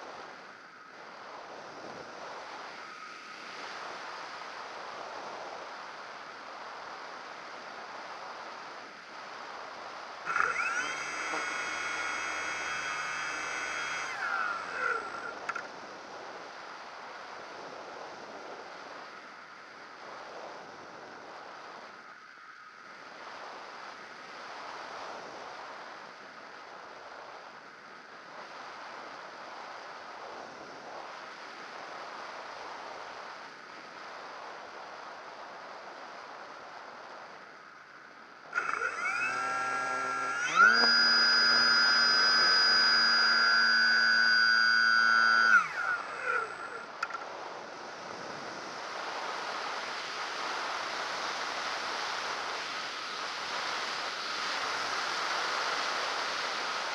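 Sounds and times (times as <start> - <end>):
wind rushing over camera: 0.0 - 56.9
model airplane motor whining: 10.3 - 15.7, 38.6 - 47.2.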